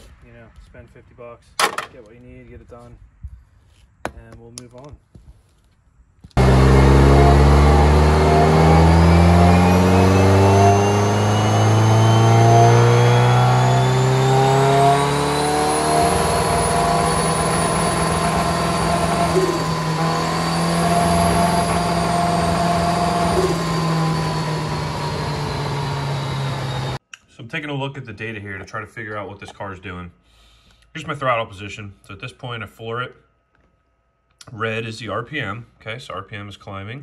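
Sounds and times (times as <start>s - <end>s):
engine revving and misfiring: 6.4s - 27.0s
high whine: 6.4s - 27.0s.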